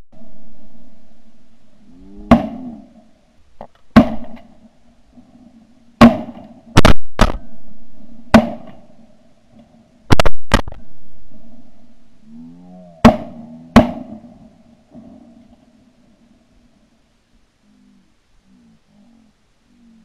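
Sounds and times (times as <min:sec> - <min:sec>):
faint low hum: 0:00.0 - 0:20.0
shotgun shots: 0:02.3 - 0:02.7, 0:03.9 - 0:04.5, 0:06.0 - 0:07.4, 0:08.3 - 0:08.9, 0:13.0 - 0:14.3.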